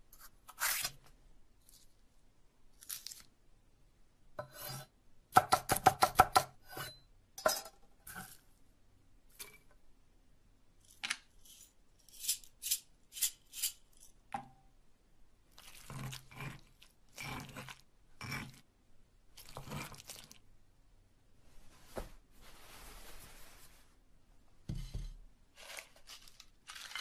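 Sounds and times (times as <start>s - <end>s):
knife chopping on wooden board: 5.4s - 6.6s
stone pestle grinding: 15.8s - 18.6s.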